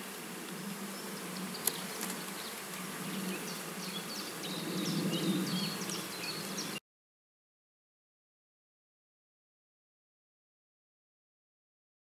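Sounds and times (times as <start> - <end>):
honeybees buzzing: 0.0 - 6.8.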